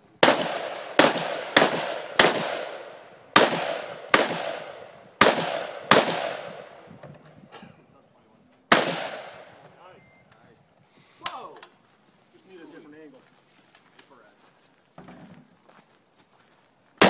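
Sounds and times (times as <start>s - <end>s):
rifle shots with echo: 0.2s - 6.9s, 8.7s - 9.6s.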